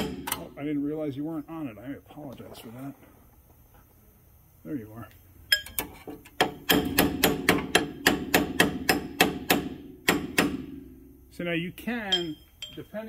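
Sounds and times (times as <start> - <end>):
hammer striking metal drift: 6.4 - 11.2.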